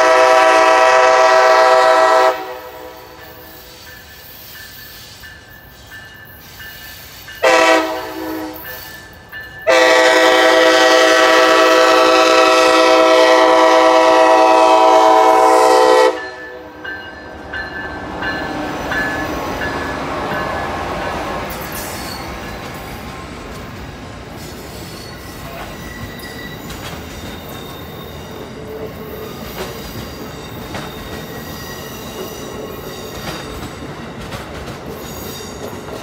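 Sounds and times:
locomotive air horn: 0.0 - 3.2, 7.4 - 8.7, 9.7 - 16.8
passing train rumble: 0.0 - 36.0.

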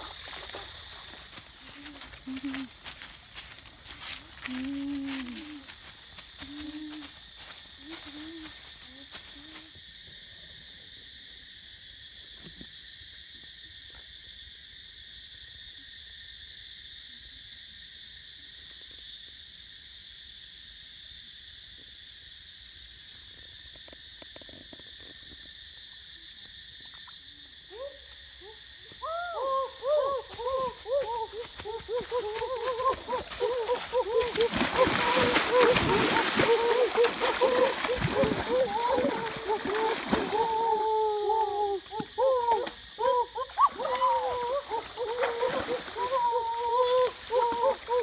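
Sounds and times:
insects droning: 0.0 - 48.0.

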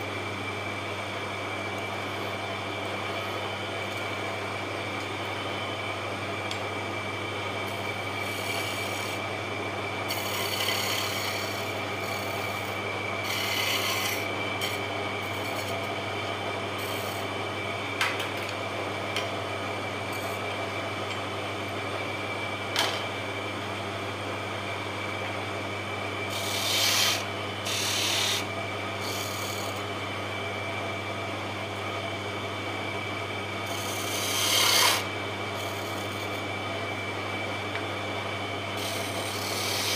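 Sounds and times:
wood lathe humming: 1.3 - 17.7, 25.1 - 30.4, 32.7 - 37.9, 38.5 - 39.9
chisel scraping spinning wood: 7.7 - 9.3, 10.0 - 16.0, 16.8 - 17.3, 26.3 - 29.9, 33.6 - 36.5, 38.8 - 39.9.

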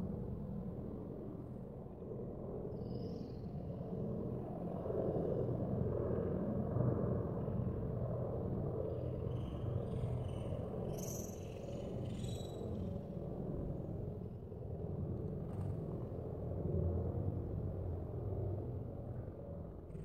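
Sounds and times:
faint bird chirps: 9.0 - 12.9.

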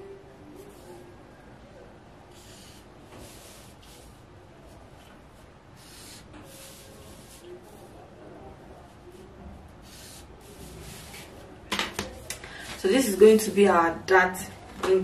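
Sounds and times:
marker pen scratching along ruler: 2.3 - 4.2, 5.0 - 7.9, 9.8 - 11.4.

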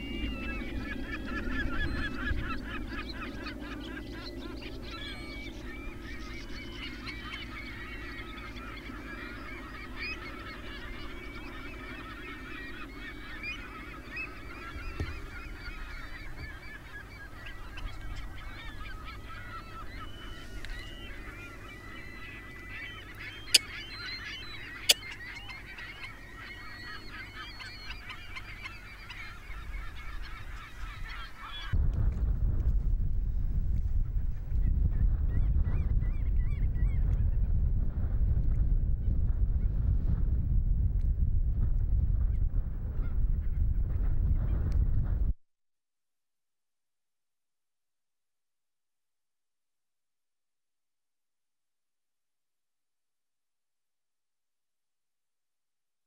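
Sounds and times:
wetland birds calling: 0.0 - 31.8.

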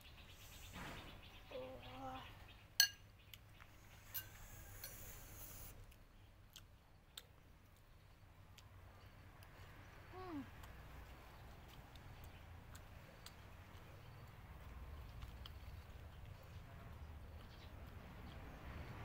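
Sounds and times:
spoons clinking on ceramic bowl: 2.8 - 3.0.

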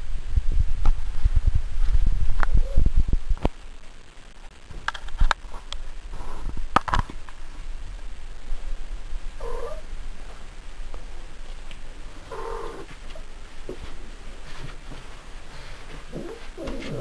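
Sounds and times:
cat purring: 9.4 - 9.9, 12.2 - 13.2, 15.6 - 17.0
cat low calls: 12.3 - 12.9.

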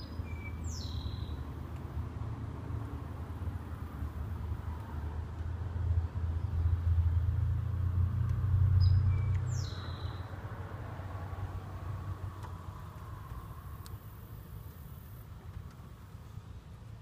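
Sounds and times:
bird chirp: 0.0 - 1.6, 8.7 - 10.4
vehicle passing by rumble: 0.0 - 17.0.

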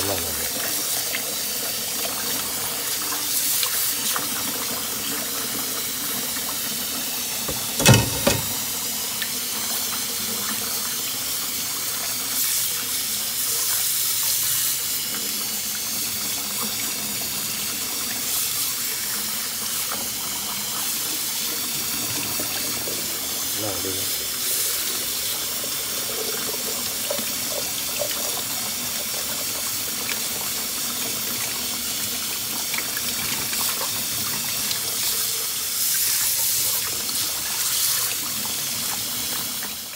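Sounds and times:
tap water running into steel bowl: 0.4 - 39.9
sharp knocks: 7.5 - 8.6.

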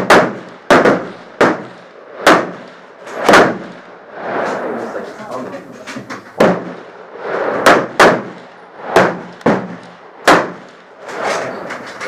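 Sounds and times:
rifle shots with echo: 0.0 - 4.1, 6.3 - 11.4.

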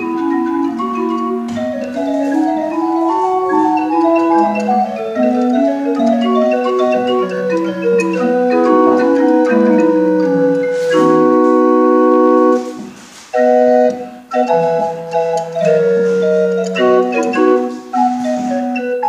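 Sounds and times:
small pipe organ playing: 0.0 - 19.0.

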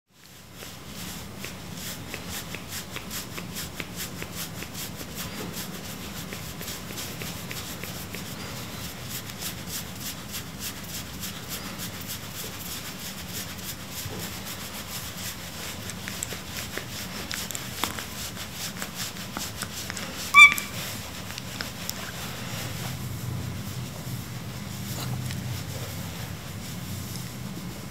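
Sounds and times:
hands rubbing fur: 0.2 - 27.9
high-pitched cat chirp: 20.3 - 20.8.

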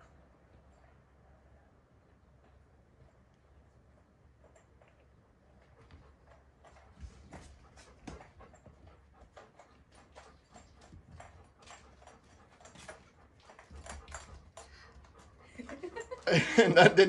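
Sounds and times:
dog panting and whimpering: 5.6 - 16.4.

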